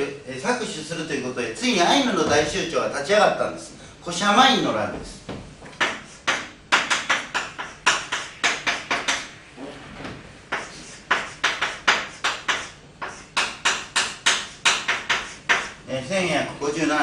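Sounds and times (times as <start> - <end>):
chalk tapping and scratching on blackboard: 5.7 - 9.4, 10.5 - 15.8.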